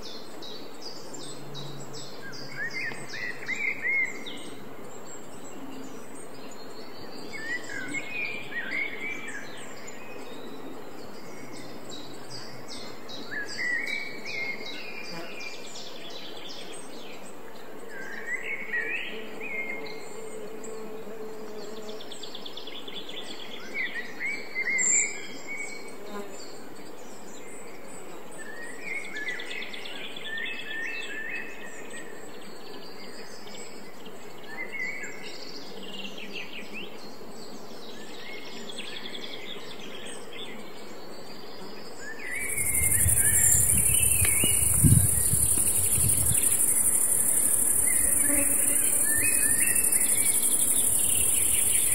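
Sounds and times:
birds chirping: 42.3 - 51.9
high-pitched insect chirring: 42.4 - 51.9.

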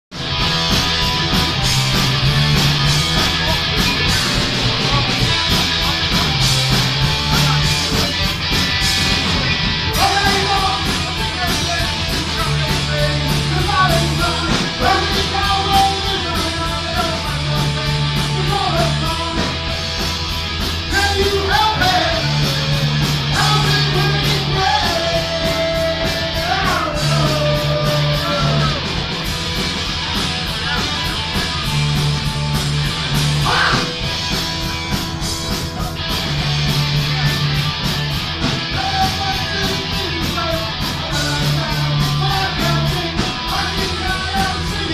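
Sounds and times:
electric guitar riff: 0.1 - 44.9
steady drum beat: 0.1 - 44.9
man singing into a microphone: 10.0 - 19.6, 20.9 - 28.8, 38.7 - 44.9.

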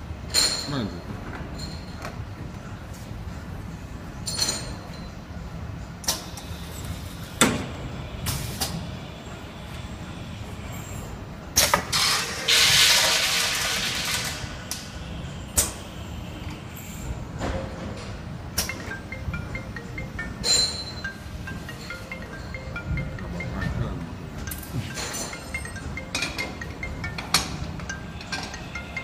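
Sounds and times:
machine humming: 18.3 - 29.0.

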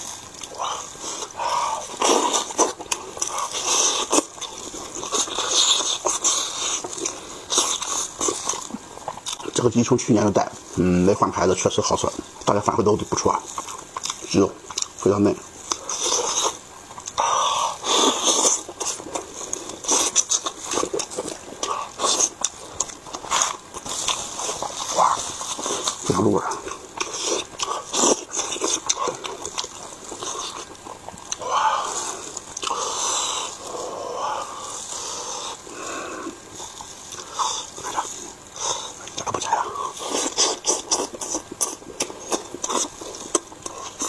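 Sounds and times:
chewing and mouth smacks: 0.3 - 9.7, 13.1 - 44.0
chewing clicks: 13.2 - 15.0, 18.0 - 32.8
sucking: 15.7 - 44.0.

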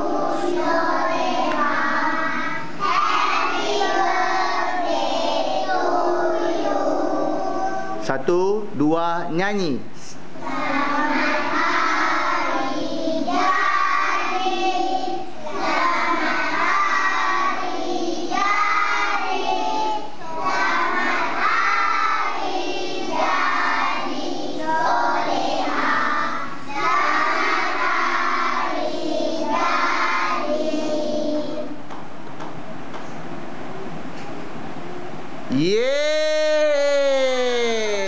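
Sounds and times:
children singing birthday song: 0.0 - 8.1, 10.3 - 31.9.

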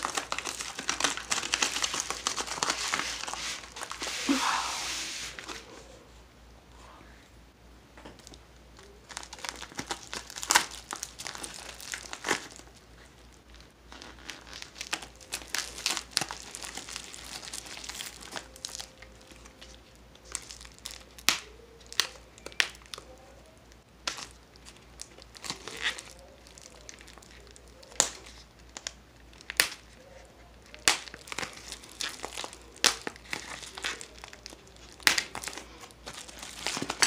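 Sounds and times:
plastic mailer crinkling: 0.0 - 4.4, 8.2 - 23.2, 24.1 - 37.0.

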